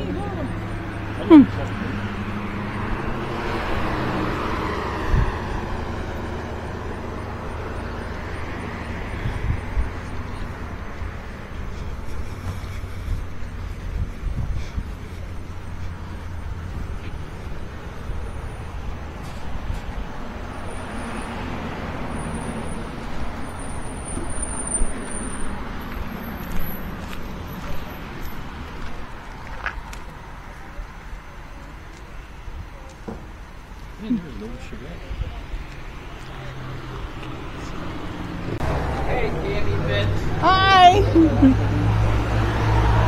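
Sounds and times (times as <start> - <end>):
car passing: 0.0 - 30.5, 33.2 - 43.0
road traffic rumble: 0.0 - 43.0.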